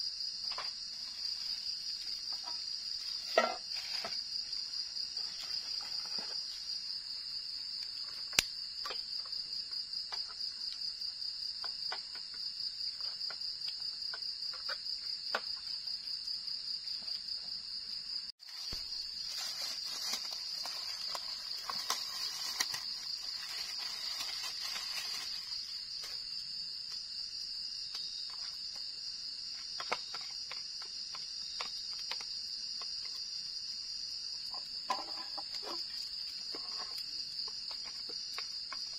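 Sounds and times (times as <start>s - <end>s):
night insects trilling: 0.0s - 38.9s
cooking things clicking and knocking: 7.8s - 16.0s, 28.0s - 33.3s, 34.4s - 38.9s.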